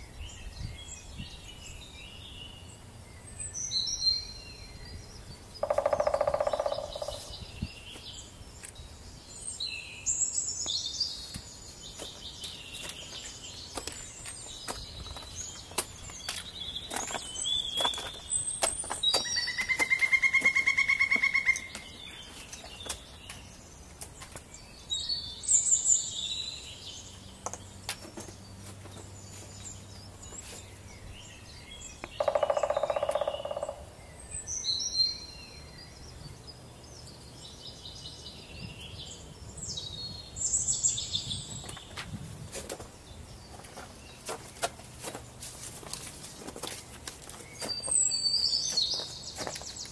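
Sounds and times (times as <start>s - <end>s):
songbirds singing: 0.0s - 49.9s
footsteps on rock: 11.4s - 24.5s, 41.8s - 49.9s
trekking poles tapping rock: 12.0s - 24.5s.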